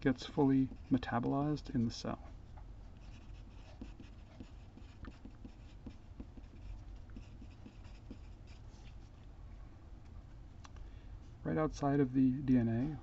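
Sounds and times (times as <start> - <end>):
pencil scratching on paper: 0.6 - 1.1, 3.0 - 9.0.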